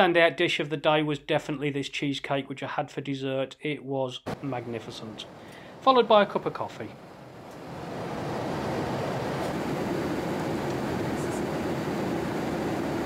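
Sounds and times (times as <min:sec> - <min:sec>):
airflow rush in cabin: 0:04.3 - 0:13.0
low engine drone: 0:04.3 - 0:13.0.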